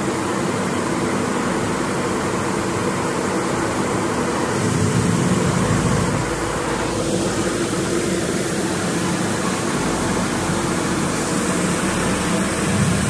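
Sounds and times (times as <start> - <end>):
grain machinery droning: 3.2 - 13.0.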